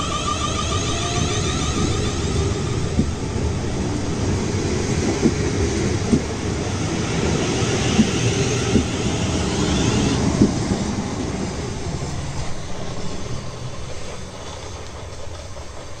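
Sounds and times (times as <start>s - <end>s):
electric train rumbling: 0.0s - 16.0s.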